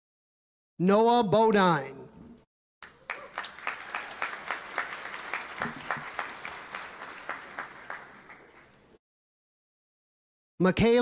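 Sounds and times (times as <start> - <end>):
audience applauding: 2.8 - 9.0
sharp individual claps: 2.8 - 9.0.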